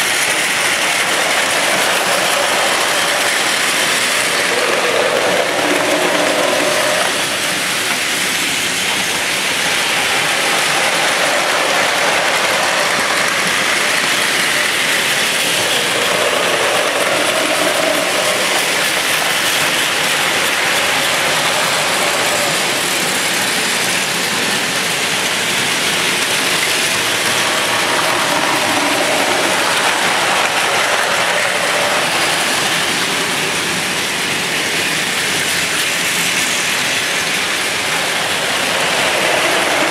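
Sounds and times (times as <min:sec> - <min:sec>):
toy trains whirring and rattling: 0:00.0 - 0:39.9.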